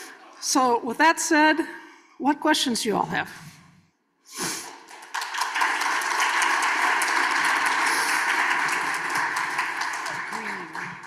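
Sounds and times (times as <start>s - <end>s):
people applauding: 4.6s - 11.0s.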